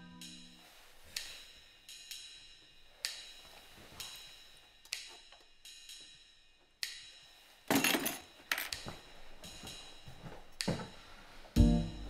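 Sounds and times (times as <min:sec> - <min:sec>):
photo frame clattering into wastebasket: 0:07.7 - 0:08.3.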